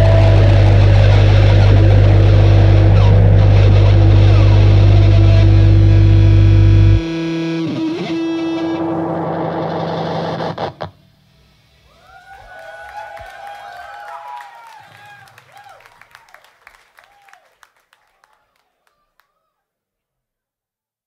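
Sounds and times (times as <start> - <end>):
bass guitar: 0.0 - 11.0
distorted electric guitar: 0.0 - 11.6.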